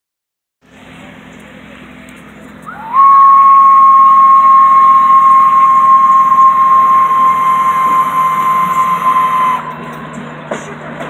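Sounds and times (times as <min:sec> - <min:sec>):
locomotive whistle: 0:02.6 - 0:10.2.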